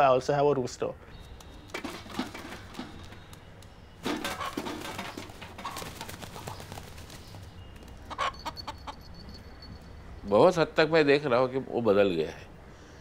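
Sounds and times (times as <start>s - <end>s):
wing flaps: 1.5s - 8.2s.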